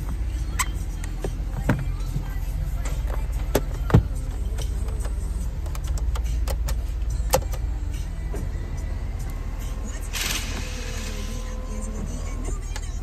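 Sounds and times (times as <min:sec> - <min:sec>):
low rumble inside car: 0:00.0 - 0:13.0.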